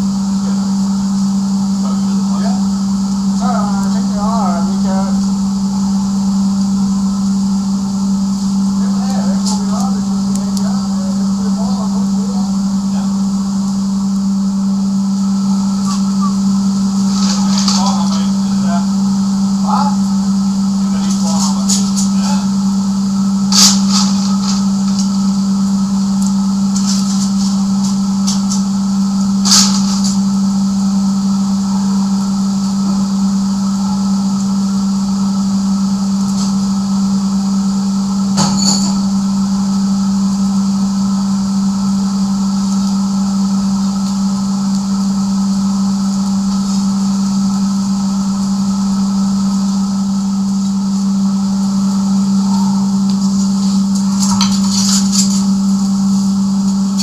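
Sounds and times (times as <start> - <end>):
air blast humming: 0.0 - 26.1, 51.5 - 54.6
fire crackling: 0.0 - 57.0.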